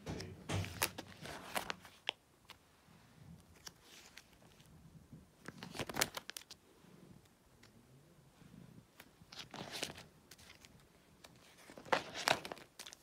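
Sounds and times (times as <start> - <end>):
plastic sleeve pages crinkling: 0.1 - 2.6, 3.4 - 4.7, 5.4 - 6.6, 9.0 - 13.0.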